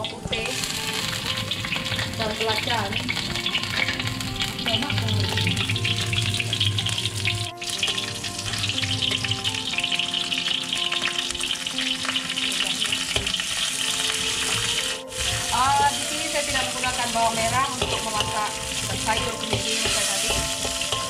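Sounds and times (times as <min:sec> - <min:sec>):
garlic sizzling in hot oil: 0:00.0 - 0:21.0
metal spatula stirring in wok: 0:00.6 - 0:11.3, 0:12.1 - 0:21.0.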